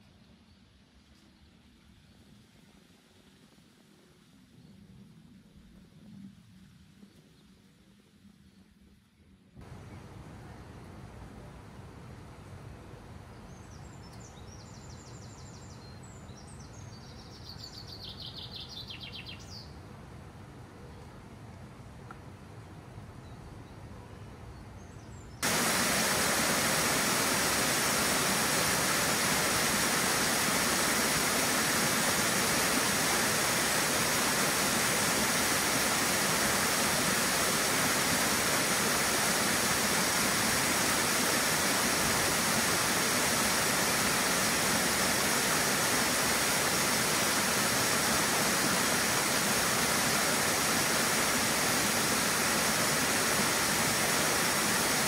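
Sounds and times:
waterfall rushing: 0:25.4 - 0:55.0.

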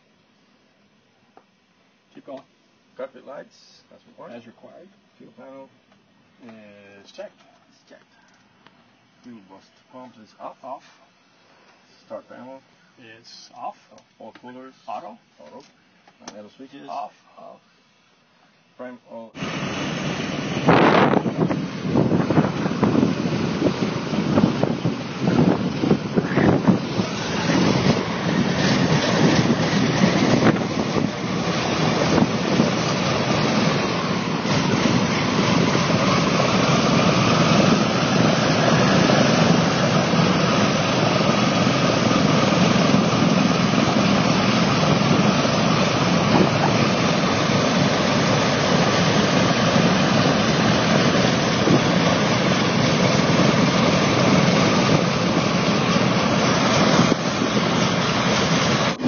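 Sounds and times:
propeller airliner engines running: 0:19.3 - 0:59.0.

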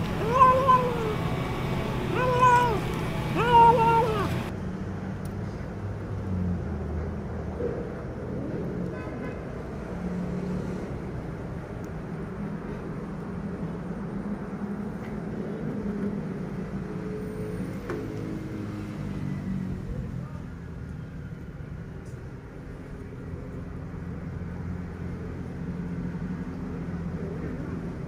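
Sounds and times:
vehicle engine humming: 0:00.0 - 0:04.7.

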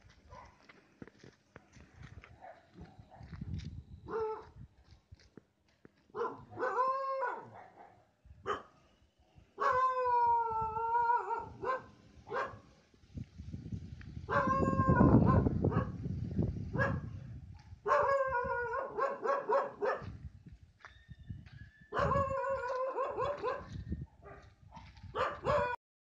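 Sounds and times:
dog yelping: 0:06.2 - 0:07.9, 0:09.6 - 0:12.6, 0:14.3 - 0:15.9, 0:17.9 - 0:20.0, 0:21.9 - 0:23.7, 0:25.2 - 0:25.8
dog howling: 0:09.6 - 0:11.8, 0:14.3 - 0:15.4, 0:21.9 - 0:23.7, 0:25.4 - 0:25.8.

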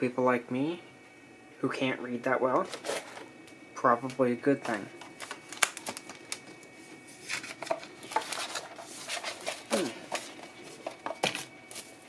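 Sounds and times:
plastic wrap crinkling: 0:02.6 - 0:03.3, 0:05.0 - 0:12.0.

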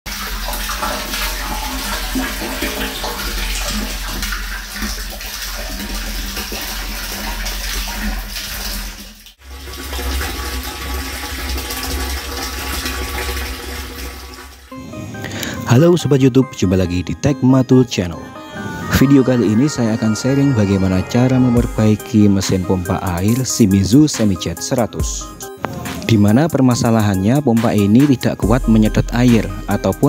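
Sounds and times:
water pouring into a tank: 0:00.1 - 0:14.7.

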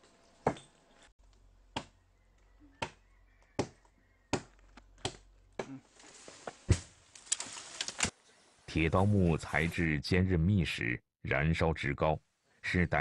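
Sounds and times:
machete chopping into wood: 0:03.6 - 0:05.8, 0:06.7 - 0:07.0.

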